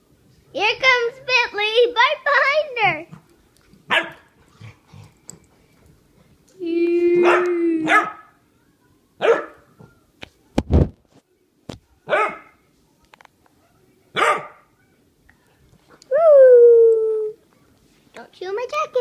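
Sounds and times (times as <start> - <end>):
small dogs barking: 3.9 - 4.3, 7.2 - 8.4, 9.2 - 9.6, 12.1 - 12.6, 14.1 - 14.7.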